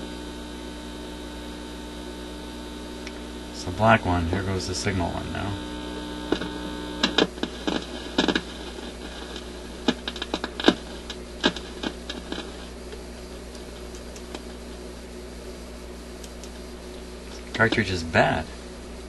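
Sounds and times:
low mains hum: 0.0s - 19.0s
wire clips clicking and scratching: 6.3s - 12.7s.

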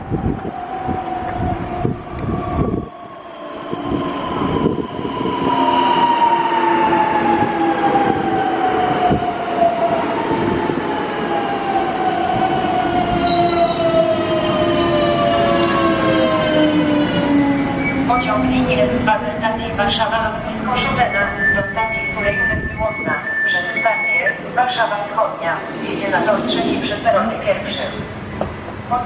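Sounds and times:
electric train braking: 25.4s - 28.4s
traction motors whining: 25.6s - 27.5s.

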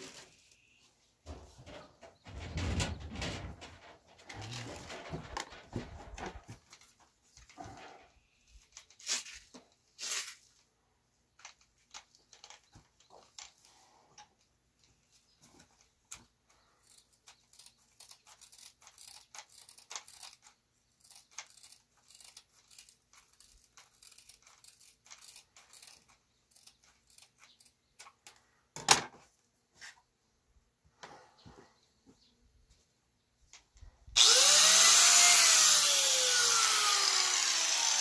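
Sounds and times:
velcro disc tearing off: 8.8s - 10.5s, 16.8s - 27.7s
handling clicks and rustles: 11.3s - 30.0s.

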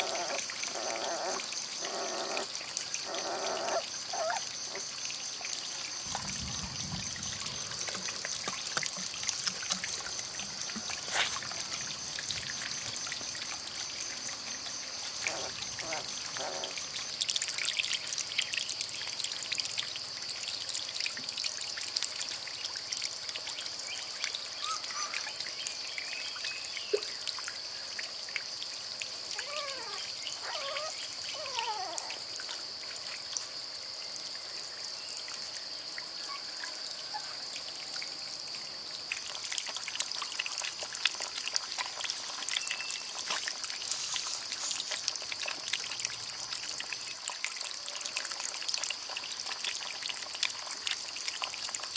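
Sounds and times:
gliding animal calls: 0.0s - 4.5s, 15.2s - 16.8s, 29.4s - 32.2s
water pouring and trickling: 0.0s - 51.9s.

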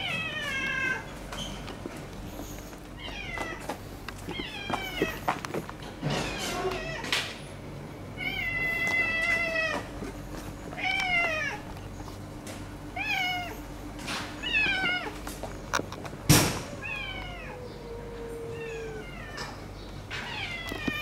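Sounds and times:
cat meowing: 8.2s - 9.9s, 10.8s - 11.6s, 13.0s - 13.6s, 14.4s - 15.2s, 16.6s - 19.6s, 20.2s - 21.0s.

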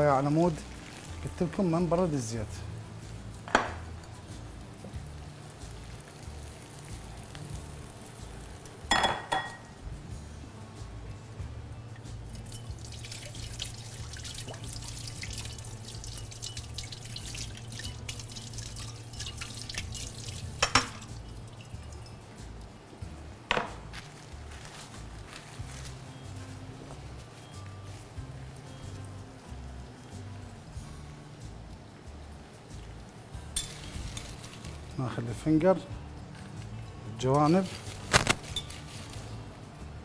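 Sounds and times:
fries sizzling in hot oil: 0.0s - 9.8s, 12.1s - 23.2s, 32.8s - 40.0s.

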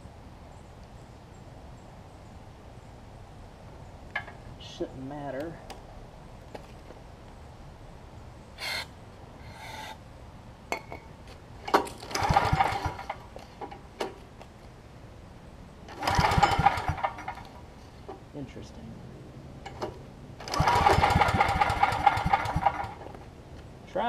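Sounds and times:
engine cranking with recoil starter: 11.7s - 13.7s, 15.9s - 17.6s, 19.7s - 23.2s.

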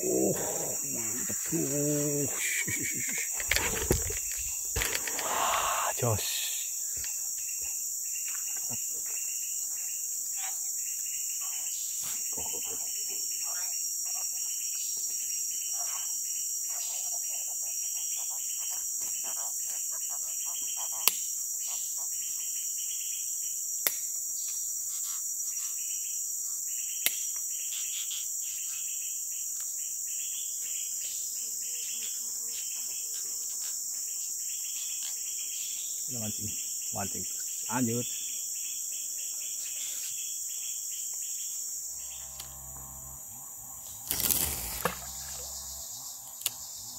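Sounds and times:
insect chorus drone: 0.0s - 46.9s
sharp clicks: 3.1s - 5.5s.

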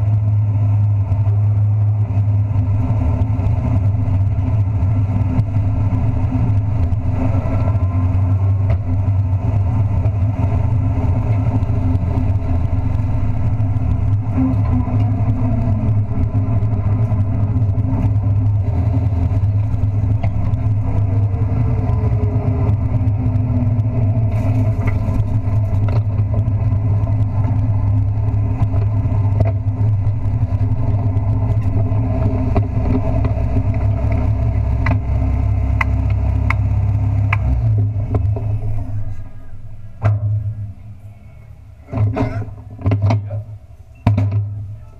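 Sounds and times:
truck engine droning: 0.0s - 44.9s.

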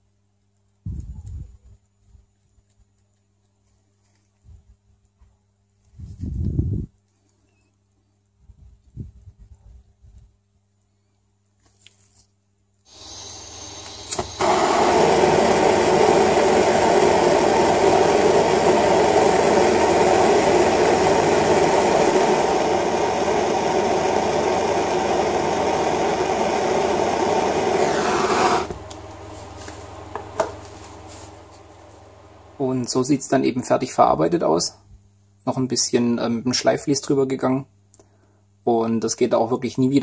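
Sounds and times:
torch click: 12.9s - 23.2s, 24.0s - 30.8s
torch flame roaring: 12.9s - 31.5s
gas hissing: 12.9s - 32.7s.

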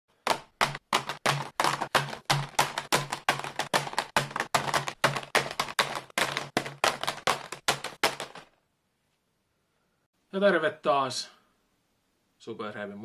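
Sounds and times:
rapid sharp clacking with thuds: 0.1s - 8.6s.

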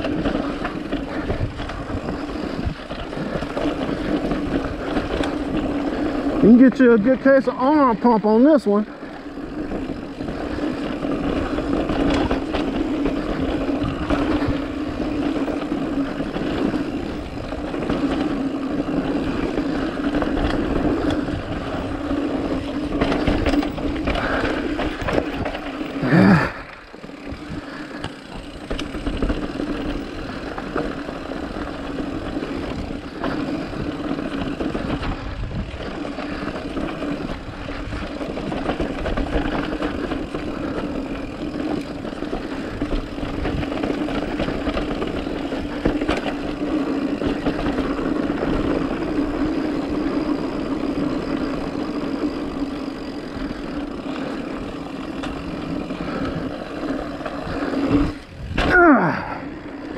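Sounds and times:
wind noise: 0.0s - 6.5s, 31.6s - 54.3s, 55.5s - 59.7s
knocks and rattles over bumps: 0.0s - 8.4s, 9.1s - 59.6s
mountain bike rolling on dirt trail: 0.0s - 59.9s.

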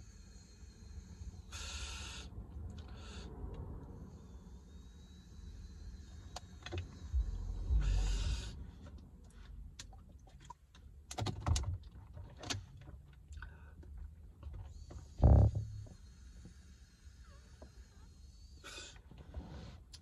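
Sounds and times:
long exhaled breath: 0.0s - 8.8s.

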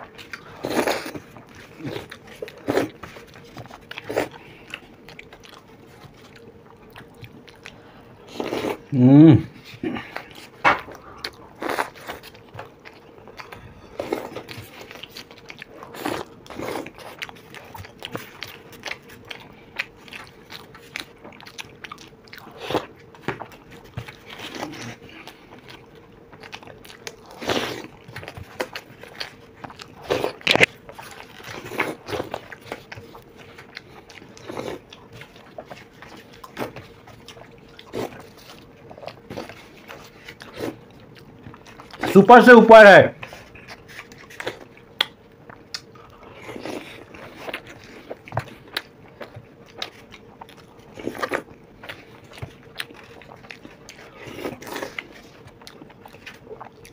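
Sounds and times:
wet chewing and crunching: 0.0s - 56.9s.

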